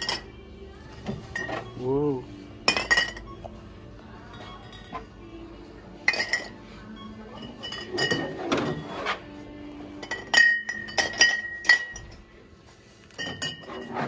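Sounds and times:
glass bottles clinking: 0.0s - 0.3s, 1.1s - 1.8s, 2.6s - 3.6s, 4.2s - 5.1s, 6.0s - 6.6s, 7.3s - 9.0s, 9.9s - 12.3s, 13.1s - 14.0s
music: 0.0s - 14.0s.

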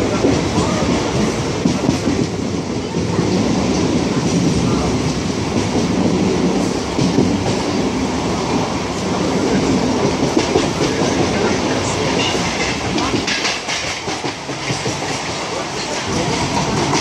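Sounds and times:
clickety-clack of rail joints: 0.0s - 17.0s
train wheels rumbling on rails: 0.0s - 17.0s.

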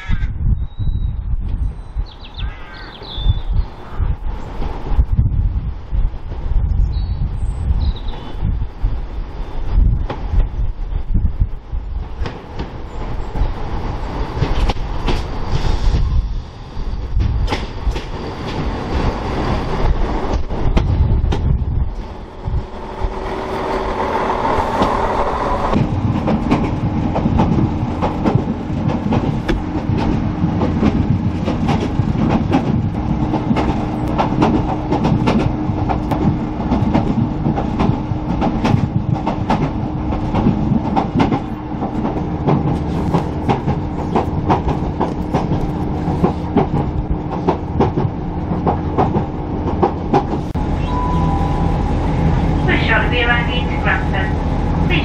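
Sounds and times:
train engine drone: 3.6s - 55.0s
wheels clicking over rail joints: 25.7s - 50.6s.

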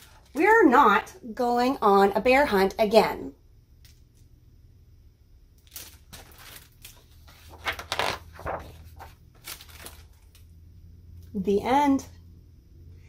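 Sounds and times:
book pages turning: 5.7s - 10.5s.

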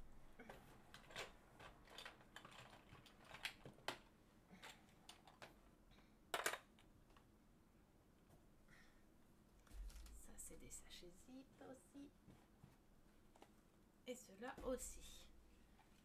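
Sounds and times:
plastic bags crinkling: 9.7s - 10.3s.

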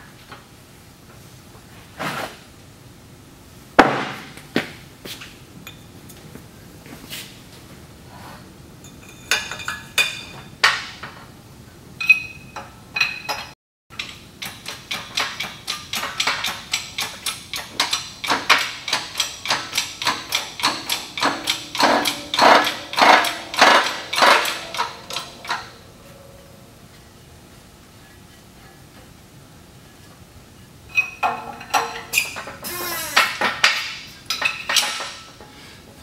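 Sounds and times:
metal-on-metal knocks: 14.4s - 25.8s.

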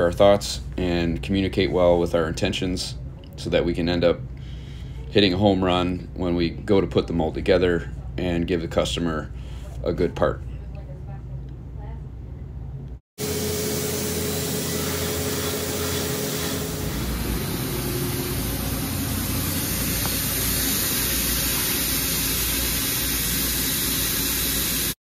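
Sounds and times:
low machinery hum: 0.0s - 25.0s
loud machinery hiss: 13.2s - 25.0s.

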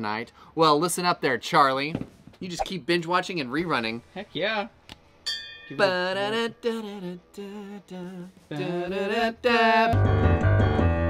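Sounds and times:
person humming wordless tune: 6.0s - 10.0s.

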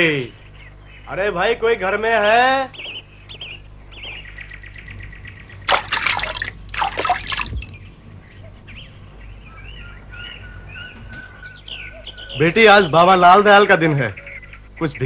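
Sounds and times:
birds chirping: 0.0s - 15.0s
water splashing into bucket: 5.7s - 7.8s.

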